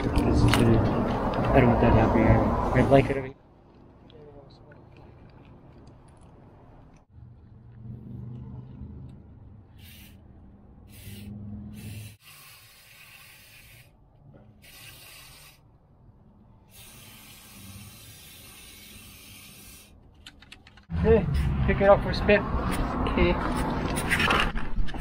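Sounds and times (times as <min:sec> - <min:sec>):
aerosol spray hissing: 0:09.7 - 0:10.2, 0:10.9 - 0:13.9, 0:14.6 - 0:15.6, 0:16.7 - 0:19.9.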